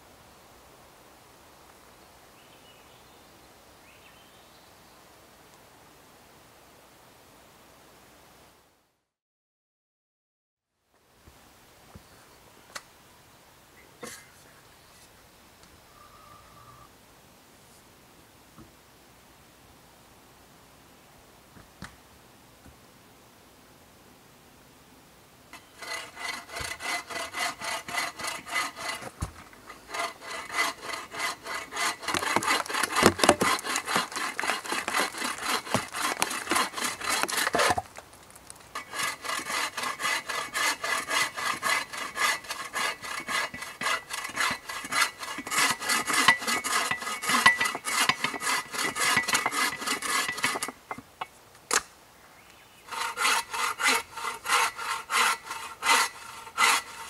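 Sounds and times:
bow saw cutting log: 25.6s - 37.9s, 38.8s - 51.0s, 52.9s - 57.0s.

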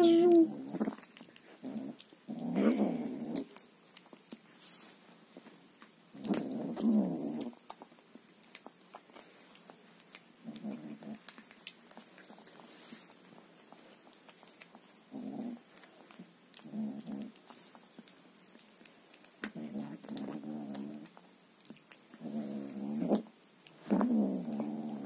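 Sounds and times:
kitten low rumbles: 0.0s - 3.6s, 6.2s - 7.7s, 19.4s - 21.2s, 22.1s - 25.0s
kitten chewing food: 0.0s - 25.0s.

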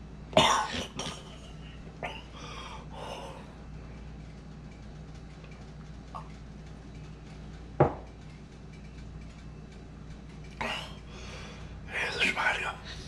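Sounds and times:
steady low hum: 0.0s - 13.0s
glass set down on hard surface: 7.8s - 8.1s.

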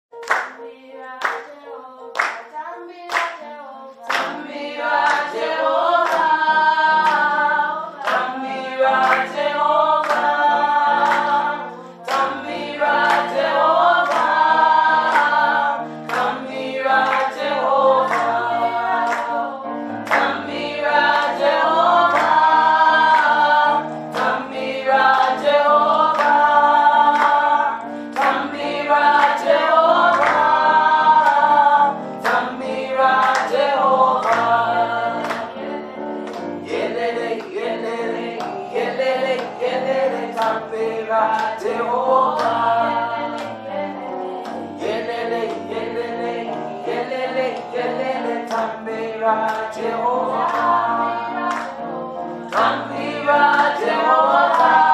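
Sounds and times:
hand claps: 0.2s - 0.6s, 2.2s - 2.5s, 3.1s - 3.4s, 4.1s - 7.3s, 8.0s - 11.4s, 12.0s - 19.3s, 20.0s - 27.5s, 28.1s - 31.4s, 32.2s - 34.6s, 35.2s - 35.6s, 36.2s - 37.7s, 38.3s - 41.7s, 42.3s - 42.7s, 47.4s - 48.8s, 49.4s - 49.8s, 50.4s - 51.8s, 52.4s - 54.9s
women's choir singing gospel: 0.2s - 54.9s.

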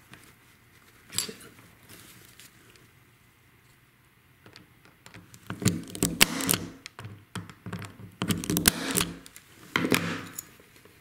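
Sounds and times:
punch-down tool snapping: 5.5s - 6.9s, 8.2s - 9.3s.

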